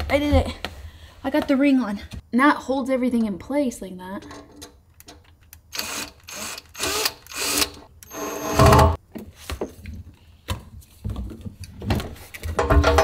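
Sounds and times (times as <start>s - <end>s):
cordless drill bursts: 5.7s - 9.0s.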